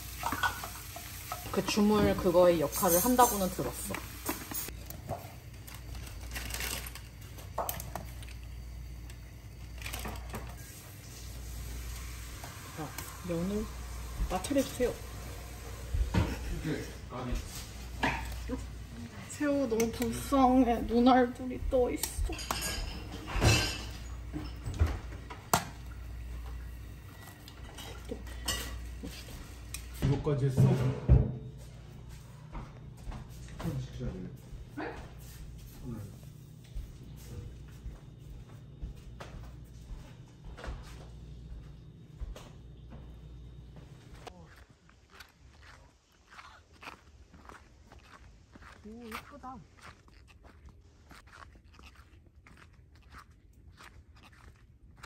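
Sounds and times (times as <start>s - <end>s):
kitchen utensils clinking: 0.0s - 8.4s, 22.0s - 26.0s, 27.2s - 30.0s.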